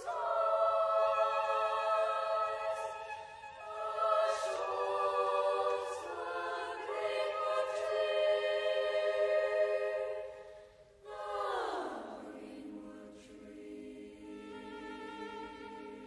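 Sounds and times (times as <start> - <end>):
boys' choir singing: 0.0 - 10.4, 11.0 - 16.0.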